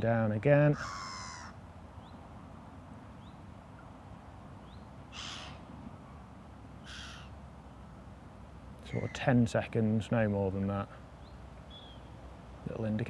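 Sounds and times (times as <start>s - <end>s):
harsh bird calls: 0.6s - 2.2s, 4.6s - 5.7s, 6.8s - 8.0s, 8.8s - 9.4s, 11.1s - 12.2s
small birds chirping: 0.7s - 2.4s, 3.0s - 5.7s, 6.8s - 8.1s, 8.8s - 13.0s.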